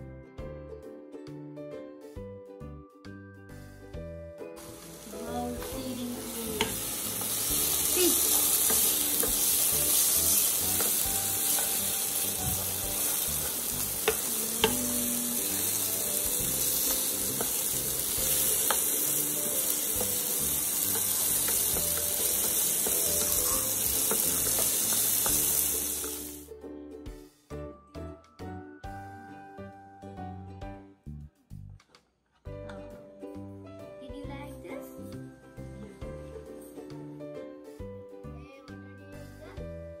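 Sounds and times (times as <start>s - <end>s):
vegetables sizzling in hot oil: 4.5s - 26.5s
spatula tapping a pan: 6.5s - 15.0s, 15.8s - 26.3s.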